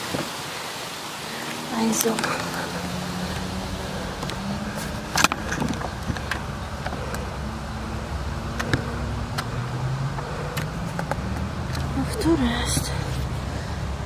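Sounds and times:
bicycle rolling: 0.0s - 14.0s
bicycle clicks and rattles: 3.3s - 7.4s.

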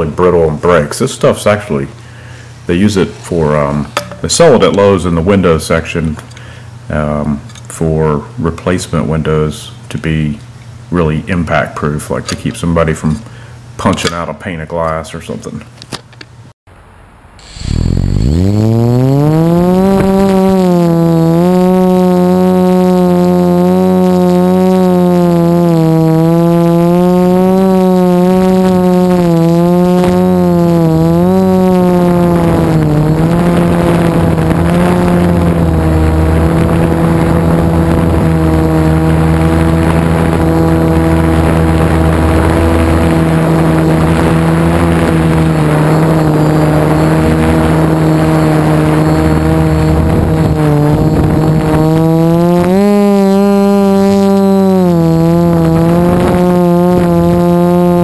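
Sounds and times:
drone motors buzzing: 17.3s - 58.0s
wind noise: 31.9s - 52.8s, 55.0s - 57.5s.

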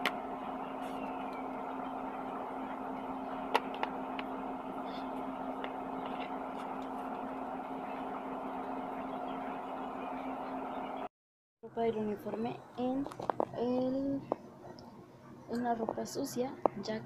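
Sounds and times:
electric fan humming: 0.0s - 11.1s.

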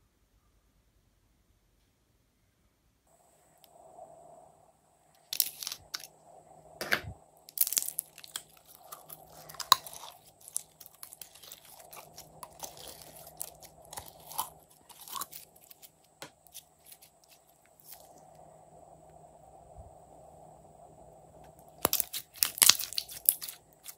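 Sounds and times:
slime squishing crackles: 5.2s - 6.1s, 7.5s - 18.2s, 21.7s - 23.9s.

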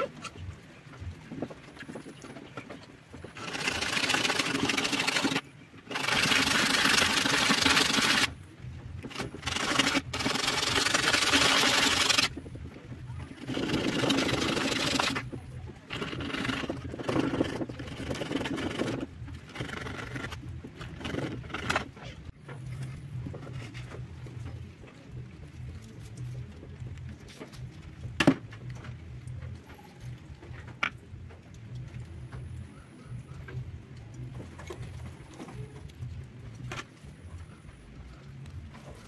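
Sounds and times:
metal scraping on sanding disc: 3.3s - 8.3s, 9.1s - 12.3s, 13.2s - 21.9s.

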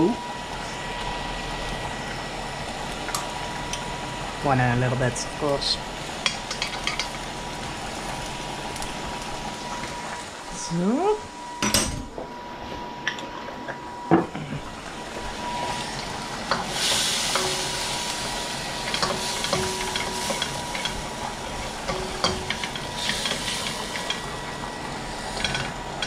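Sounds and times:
onion and garlic sizzling: 0.0s - 11.6s, 13.3s - 26.0s.

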